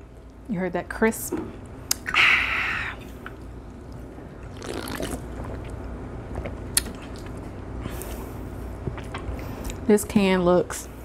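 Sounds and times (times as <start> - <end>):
sipping from a can: 4.5 - 5.7.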